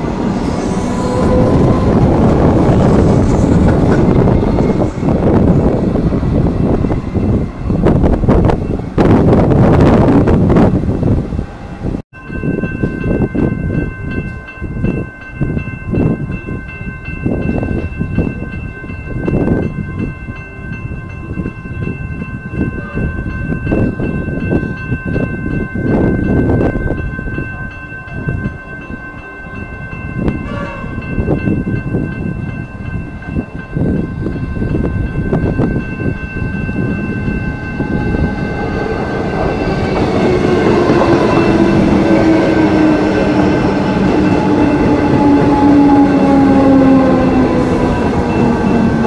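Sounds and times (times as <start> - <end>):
wind buffeting microphone: 0.0 - 49.0
level crossing bells ringing: 12.2 - 49.0.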